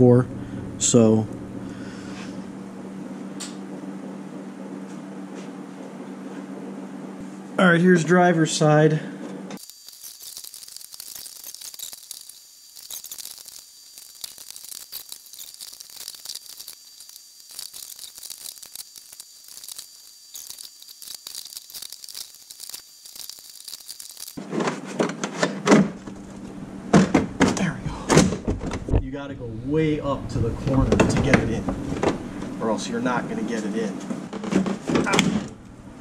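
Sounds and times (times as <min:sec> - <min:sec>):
steady hiss: 0:09.6 - 0:24.4.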